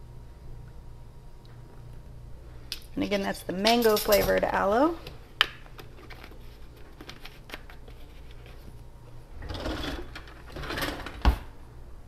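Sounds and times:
drawer sliding with rattle: 9.4s - 11.5s.

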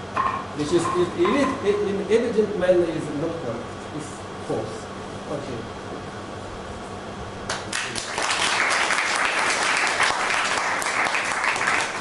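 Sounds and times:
audience applauding: 7.5s - 12.0s.

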